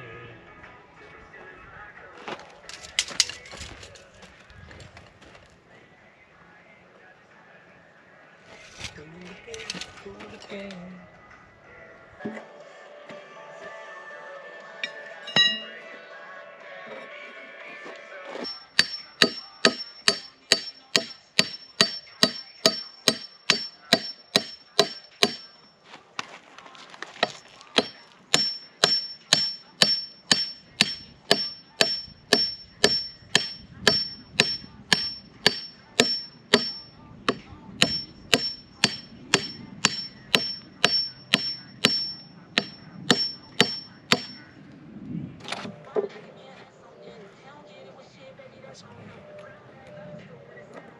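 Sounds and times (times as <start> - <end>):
hammer ringing on steel stakes: 14.8 - 15.8, 18.4 - 25.7, 27.2 - 44.5.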